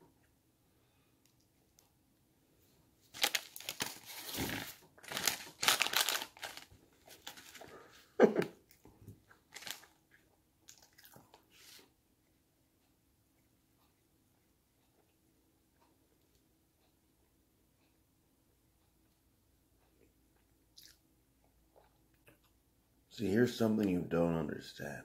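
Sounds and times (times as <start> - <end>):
snack packaging crinkling: 3.1 - 7.7, 9.3 - 10.1
snack crunching: 8.7 - 11.5, 20.4 - 22.6.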